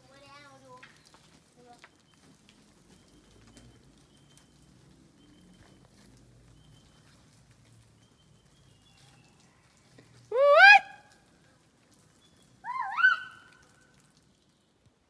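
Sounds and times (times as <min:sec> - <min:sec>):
faint footsteps on trail: 0:00.2 - 0:10.3
distant birds whistling: 0:02.9 - 0:07.3.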